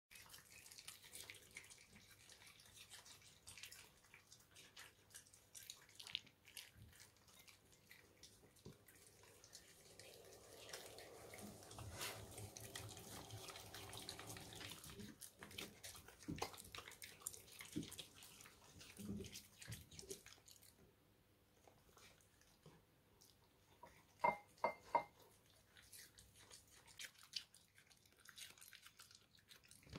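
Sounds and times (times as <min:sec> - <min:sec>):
faint hum: 0:09.0 - 0:15.0.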